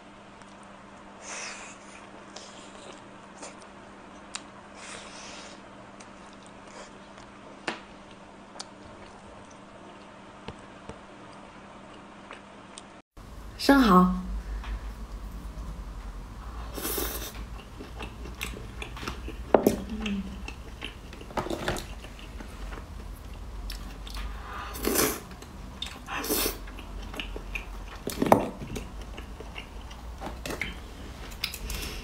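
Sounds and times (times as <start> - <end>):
chewing: 1.5 - 7.4, 16.8 - 32.0.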